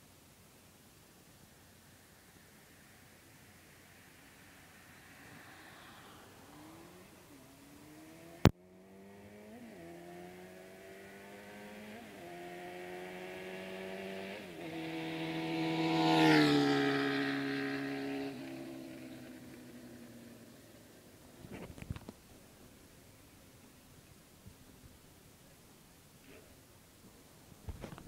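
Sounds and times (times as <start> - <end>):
motorcycle engine accelerating: 4.2 - 22.6.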